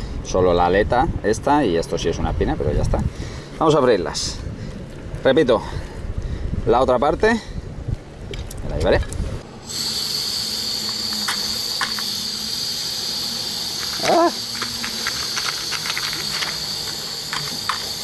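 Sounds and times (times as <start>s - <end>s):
gas burner hissing: 9.2s - 18.0s.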